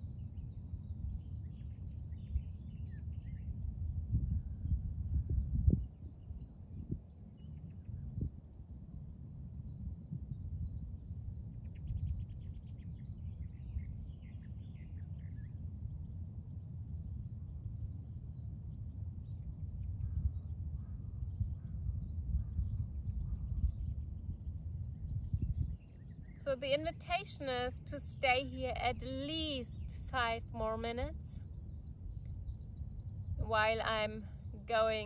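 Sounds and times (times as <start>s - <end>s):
wind rumble on microphone: 0.0s - 35.0s
birds chirping: 32.0s - 35.0s.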